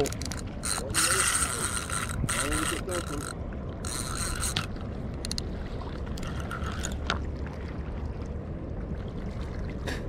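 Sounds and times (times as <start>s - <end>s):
fishing reel gears whirring: 0.0s - 5.4s, 6.2s - 7.0s.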